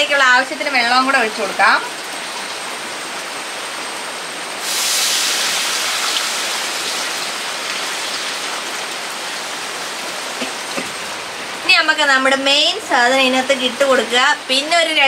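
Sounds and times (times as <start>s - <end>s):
water pouring into a pan: 4.6s - 10.4s
background hiss: 4.6s - 14.7s.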